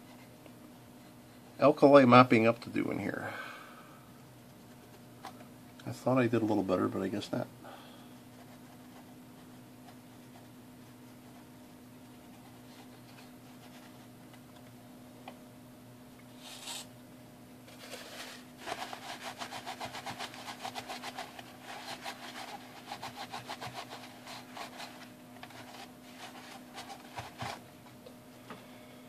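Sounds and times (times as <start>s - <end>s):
towel scrubbing plastic: 17.7s - 27.6s.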